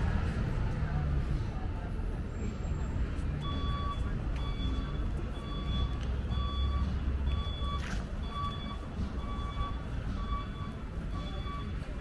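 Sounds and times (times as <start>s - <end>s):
low engine rumble: 0.0s - 12.0s
reversing alarm beeping: 3.4s - 11.9s.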